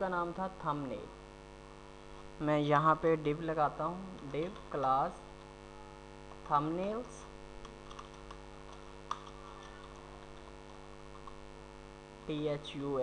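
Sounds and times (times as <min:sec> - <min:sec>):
electrical mains hum: 0:00.0 - 0:13.0
computer keyboard clicks: 0:07.6 - 0:11.4.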